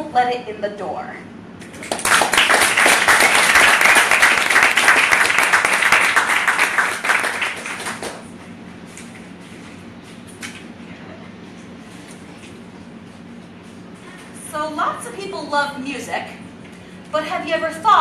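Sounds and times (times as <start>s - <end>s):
audience applauding: 1.8s - 8.3s.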